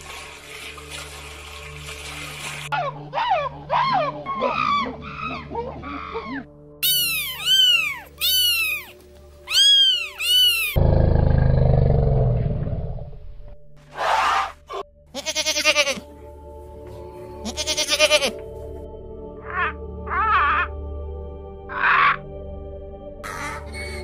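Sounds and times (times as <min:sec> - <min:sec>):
light background music: 0:00.0 - 0:10.8, 0:13.8 - 0:24.0
monkey calls: 0:02.8 - 0:08.9, 0:09.5 - 0:10.8, 0:19.4 - 0:20.7, 0:21.7 - 0:22.2
low growl: 0:10.8 - 0:13.7
goat bleating: 0:15.1 - 0:16.1, 0:17.4 - 0:18.4.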